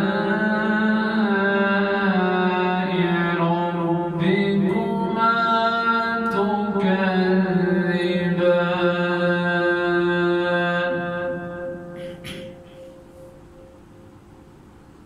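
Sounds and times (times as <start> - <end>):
man chanting melodic recitation: 0.0 - 13.3.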